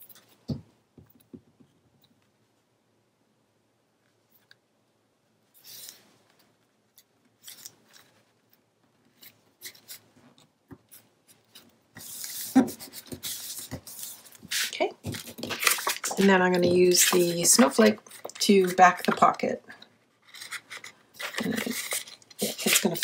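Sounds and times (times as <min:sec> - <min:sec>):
paper rustling and rubbing: 0:07.4 - 0:10.2, 0:10.9 - 0:19.2, 0:20.2 - 0:23.0.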